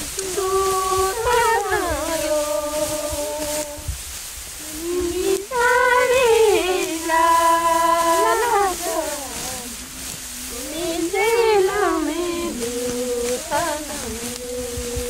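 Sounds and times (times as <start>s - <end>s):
solo voice singing: 0.0s - 3.9s, 4.6s - 15.0s.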